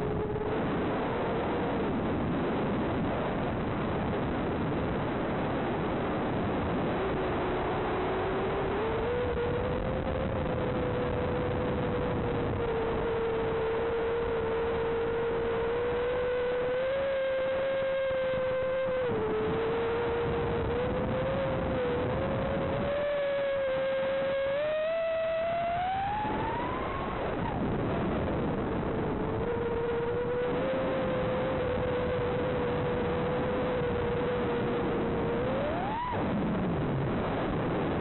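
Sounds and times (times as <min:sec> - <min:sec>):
drone motors whining: 0:06.3 - 0:38.0.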